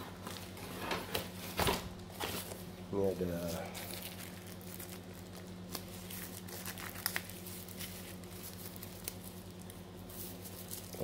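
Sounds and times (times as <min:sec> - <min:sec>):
steady low hum: 0:00.0 - 0:11.0
plastic pouch crinkling: 0:03.6 - 0:11.0.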